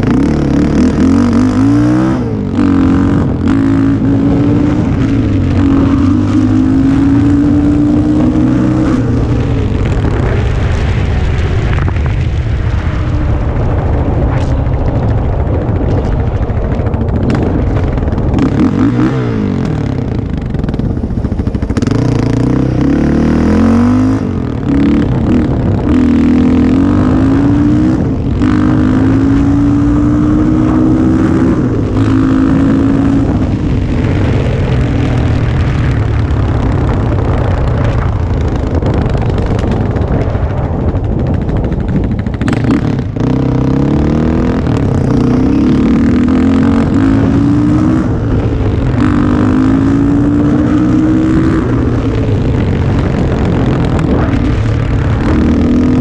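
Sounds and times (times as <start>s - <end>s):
atv engine running hard: 0.0s - 56.0s.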